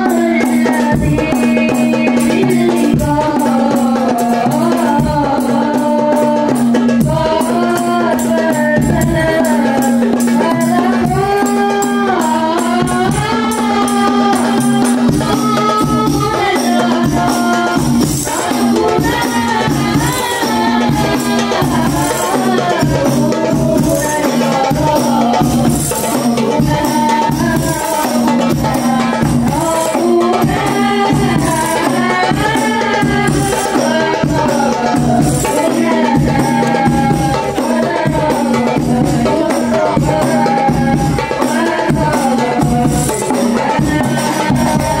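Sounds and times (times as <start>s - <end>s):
man singing into microphone: 0.0s - 3.4s
frame drums: 0.0s - 45.0s
bass drum: 34.2s - 45.0s.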